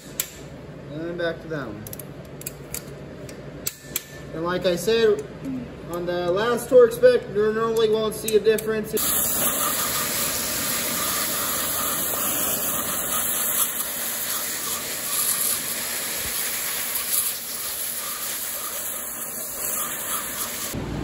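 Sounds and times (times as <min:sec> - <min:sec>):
pressure washer spray hiss: 0:09.0 - 0:20.8.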